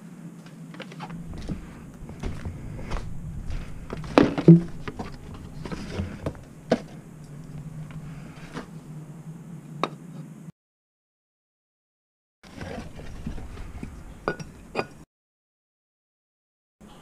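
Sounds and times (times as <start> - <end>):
steady low hum: 0.0 - 10.5, 12.6 - 15.0.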